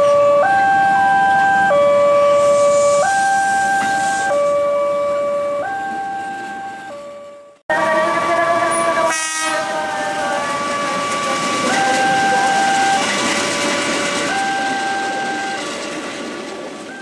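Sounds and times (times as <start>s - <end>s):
train running noise: 1.3s - 4.6s, 7.7s - 17.0s
two-tone train horn: 7.7s - 13.0s.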